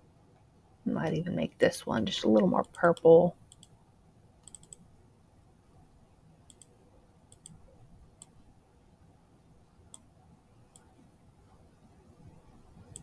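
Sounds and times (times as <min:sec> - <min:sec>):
faint low room hum: 0:00.0 - 0:13.0
computer mouse clicking: 0:02.3 - 0:03.8, 0:04.4 - 0:04.9, 0:06.5 - 0:08.4, 0:09.9 - 0:10.1.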